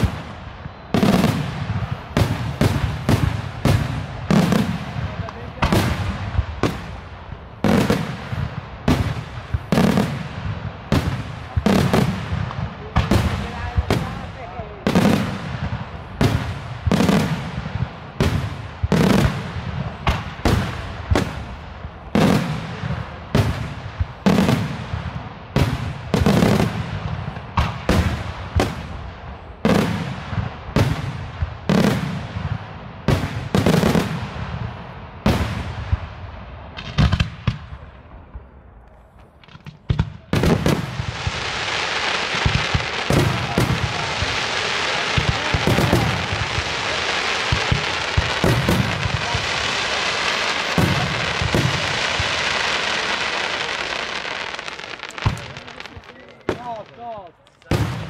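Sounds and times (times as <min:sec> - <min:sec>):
crackling of small firework bursts: 0:00.0 - 0:58.0
firework shells bursting: 0:39.4 - 0:58.0.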